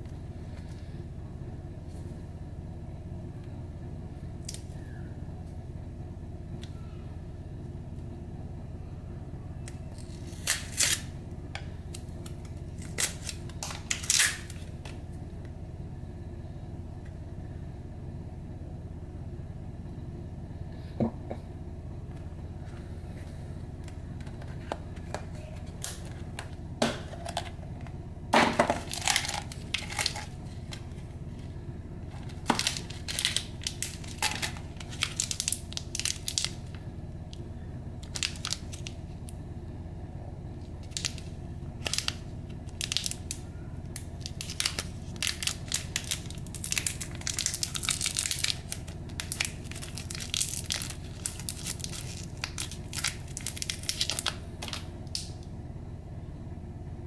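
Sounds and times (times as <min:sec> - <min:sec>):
steady low hum: 0:00.0 - 0:57.0
candy wrapper crinkling: 0:09.9 - 0:11.1, 0:11.9 - 0:15.0, 0:24.2 - 0:26.5, 0:28.7 - 0:31.1, 0:32.1 - 0:36.8, 0:38.0 - 0:39.0, 0:40.8 - 0:55.3.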